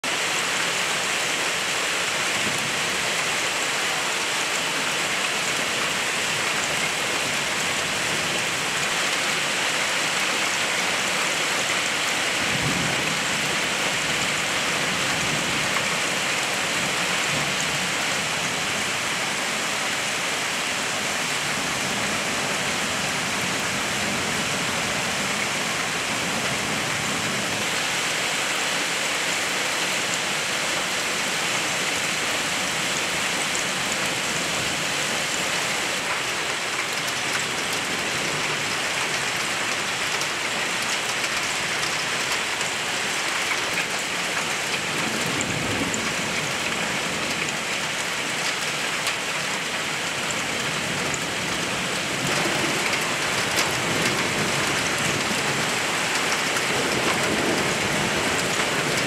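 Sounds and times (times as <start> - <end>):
heavy rain and hail on roof tiles: 0.0 - 59.0.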